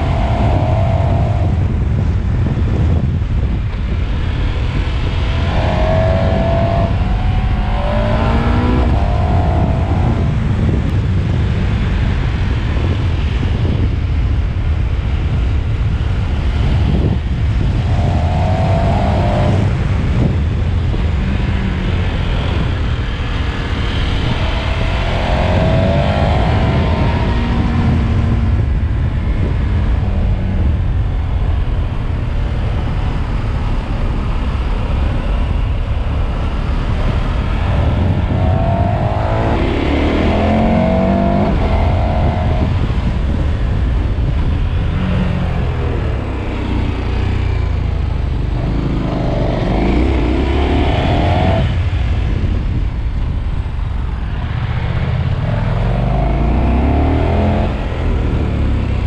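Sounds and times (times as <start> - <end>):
low rumble: 0.0 - 59.0
motorcycle engine revving under load: 4.7 - 10.9, 16.9 - 29.9, 36.8 - 43.5.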